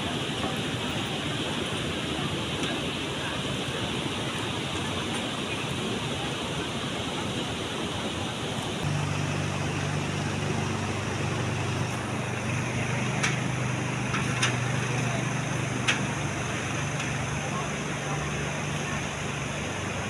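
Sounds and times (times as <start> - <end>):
water rushing: 0.0 - 20.0
low steady hum: 8.8 - 20.0.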